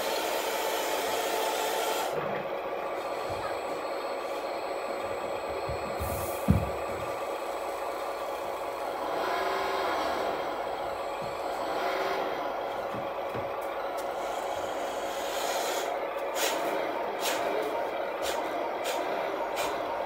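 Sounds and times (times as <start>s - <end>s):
hydraulic pump whining: 0.0s - 20.0s.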